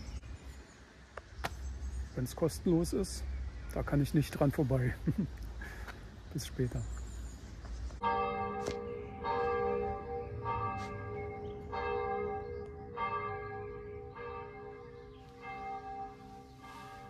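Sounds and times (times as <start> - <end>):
bells ringing in a peal: 8.0 - 17.0.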